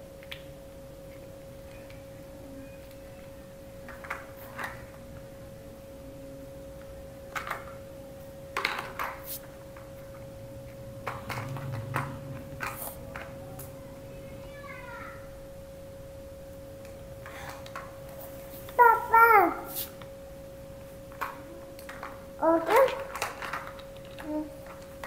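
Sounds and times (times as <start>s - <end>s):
steady tone humming: 9.3s - 22.7s
plastic toy cars clicking: 11.0s - 13.7s, 21.1s - 25.0s
toy cars knocking on plastic track: 21.2s - 24.9s.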